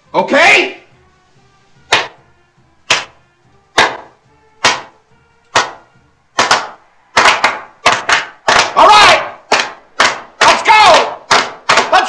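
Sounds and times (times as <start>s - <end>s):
slow hand claps: 1.9s - 2.2s, 2.9s - 8.8s, 9.5s - 10.6s, 11.3s - 12.0s.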